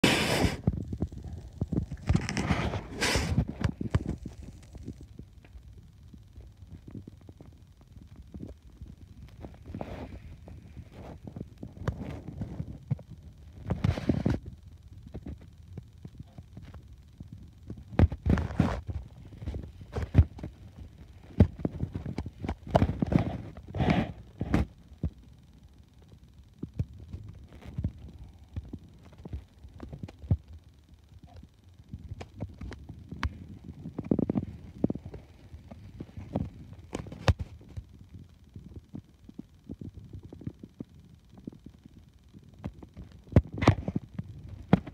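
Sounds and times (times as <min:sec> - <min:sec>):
rustling hiss: 0:00.0 - 0:14.5.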